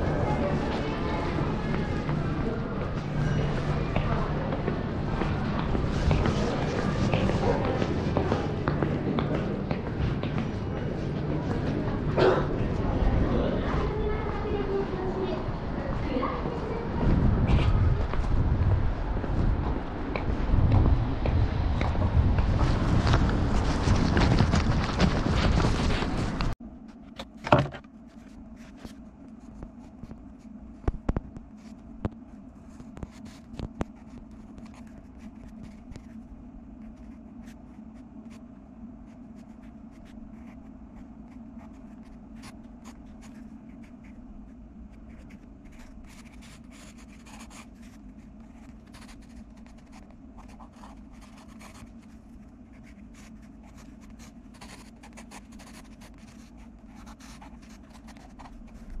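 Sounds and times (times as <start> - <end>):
steady low hum: 0.0 - 59.0
wind on microphone: 15.5 - 26.6
pencil scratching on paper: 32.7 - 36.2, 45.1 - 59.0.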